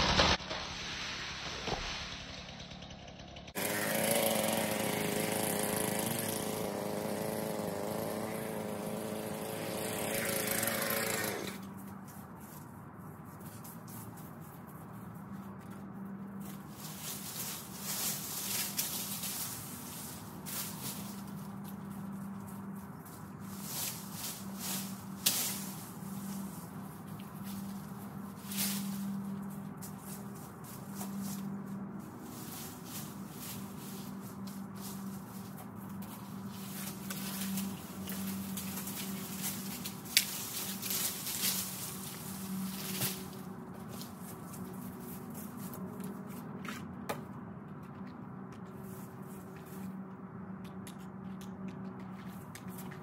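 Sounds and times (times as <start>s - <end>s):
footsteps crunching through dry leaves: 11.5s - 46.9s, 48.6s - 50.0s
branch snapping: 36.8s - 42.2s.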